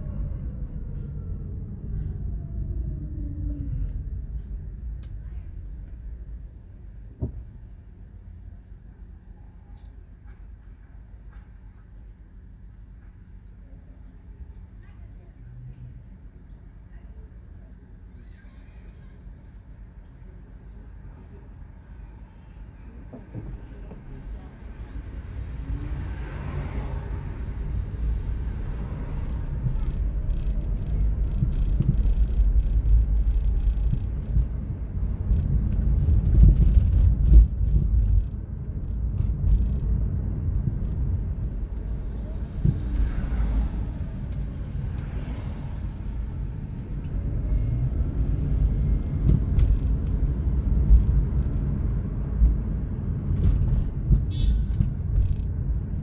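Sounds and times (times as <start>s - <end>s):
car interior road rumble: 0.0s - 18.8s, 22.4s - 56.0s
vehicles swishing past: 23.5s - 56.0s.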